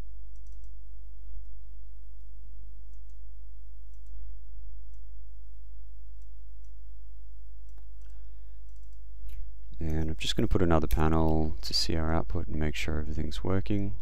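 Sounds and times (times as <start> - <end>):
steady low hum: 0.0 - 14.0
computer mouse clicks: 0.3 - 0.8, 2.9 - 3.2, 3.9 - 4.2, 7.7 - 10.1.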